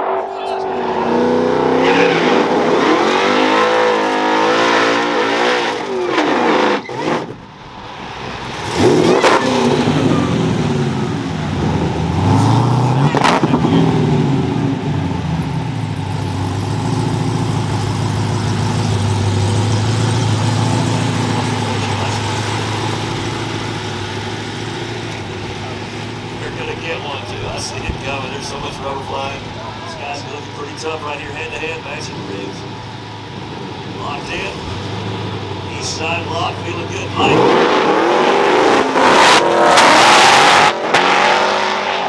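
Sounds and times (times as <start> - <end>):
drag car engines revving: 0.0 - 42.0
engine idling: 13.7 - 37.3.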